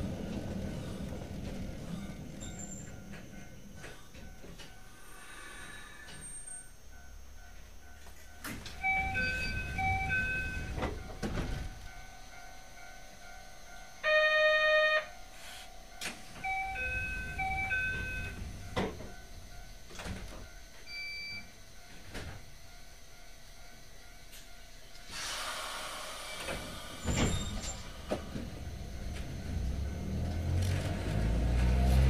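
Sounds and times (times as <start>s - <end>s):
sliding doors rumbling: 0.0s - 4.6s, 8.5s - 12.0s, 16.0s - 19.2s, 25.2s - 32.0s
electronic door chime: 8.2s - 12.1s, 16.4s - 18.5s
harsh buzzer: 14.0s - 15.1s.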